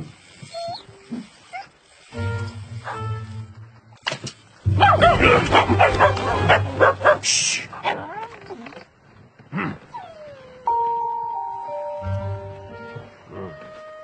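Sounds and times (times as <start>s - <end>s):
high wavering yelps and whimpers: 0.5s - 1.8s
held musical notes: 2.1s - 4.0s, 10.6s - 14.0s.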